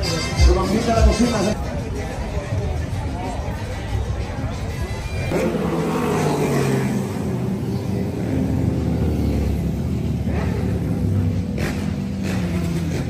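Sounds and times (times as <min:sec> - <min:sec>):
motorcycles riding past: 0:05.2 - 0:13.0.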